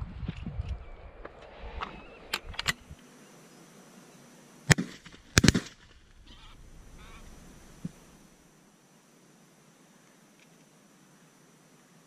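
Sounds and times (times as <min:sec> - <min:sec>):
shotgun shots: 0:04.7 - 0:08.2
geese honking: 0:05.8 - 0:08.3.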